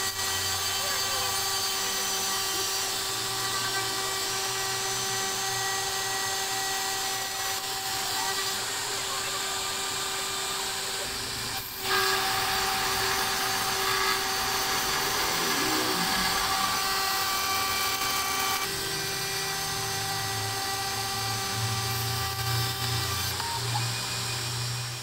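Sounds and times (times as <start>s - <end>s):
end mill cutting acrylic: 0.0s - 25.0s
router spindle whining: 0.0s - 25.0s
low hum: 13.6s - 18.1s.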